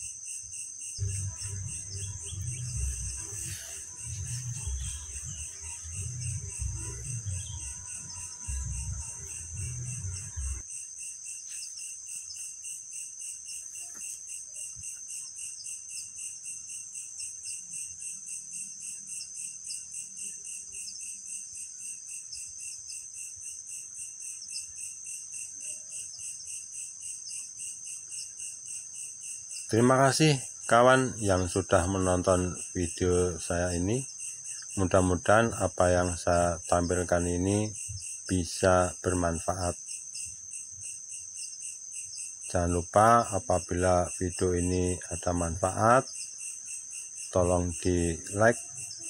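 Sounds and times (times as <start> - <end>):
insect chorus chirring: 0.0 - 49.0
low rumbling on microphone: 1.0 - 7.9, 8.5 - 10.6.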